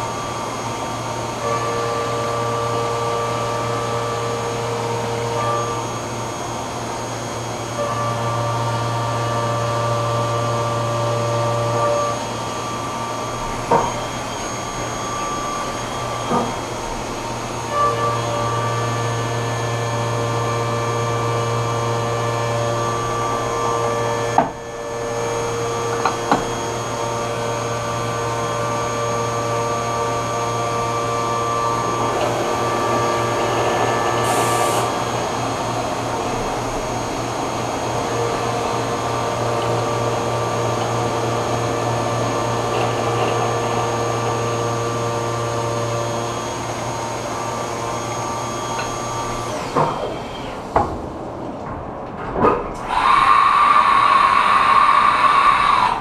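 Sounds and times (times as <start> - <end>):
milling machine spindle whine: 0.0 - 51.4, 52.8 - 56.0
coolant hiss: 28.6 - 49.5, 52.9 - 56.0.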